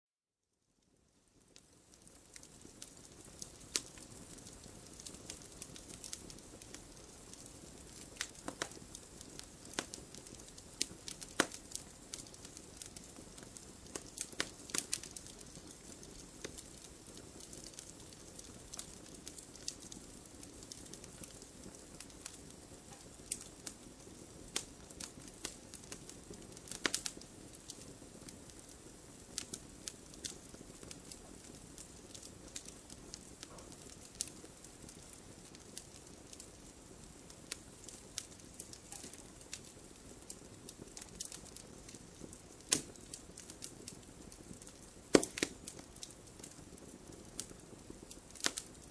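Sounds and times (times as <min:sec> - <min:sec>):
soft hiss of flames: 0:00.5 - 0:48.9
campfire crackling and popping: 0:00.8 - 0:48.9.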